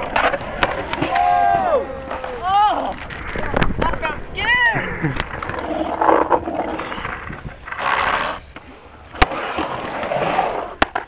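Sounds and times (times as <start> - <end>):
skateboard clack: 0.0 - 11.0
skateboard wheels rolling on concrete: 0.0 - 11.0.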